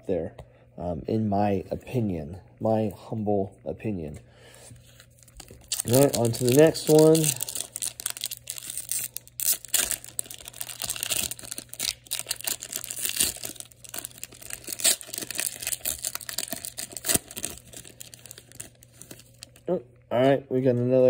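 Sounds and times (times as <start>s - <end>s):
foil wrapper crinkling: 5.0s - 19.6s.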